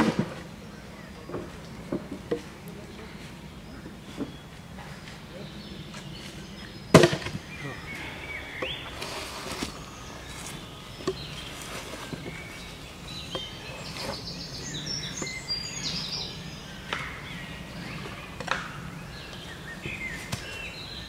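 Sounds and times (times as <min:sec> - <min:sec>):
birds chirping: 0:00.0 - 0:21.0
logs dragged over ground: 0:05.9 - 0:17.0.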